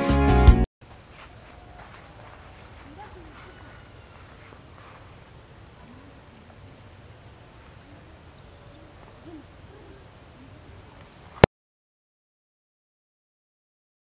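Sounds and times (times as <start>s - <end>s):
high insect tone: 0.8s - 11.4s
bird hooting: 5.8s - 11.4s.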